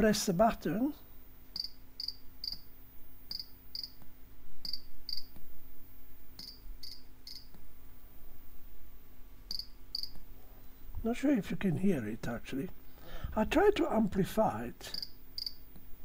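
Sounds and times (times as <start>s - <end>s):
buzzer chirping like cricket: 1.5s - 4.0s, 4.6s - 5.4s, 6.4s - 7.6s, 9.5s - 10.2s, 14.9s - 15.7s.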